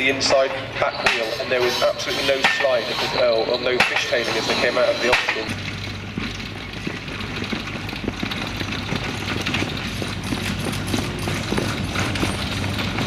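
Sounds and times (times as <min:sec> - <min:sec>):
carriage and harness rattling: 0:00.9 - 0:13.0
hoofbeats on grass: 0:03.9 - 0:13.0
low engine hum: 0:05.5 - 0:13.0.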